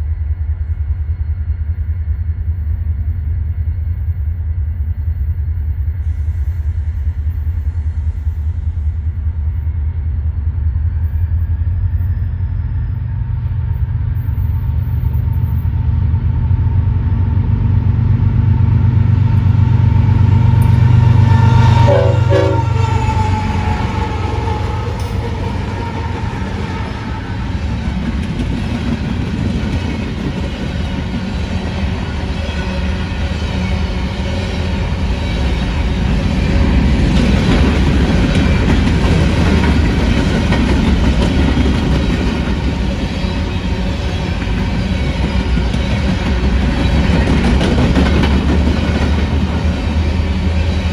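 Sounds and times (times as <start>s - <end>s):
locomotive engine drone: 0.0s - 50.9s
train horn: 19.3s - 27.6s.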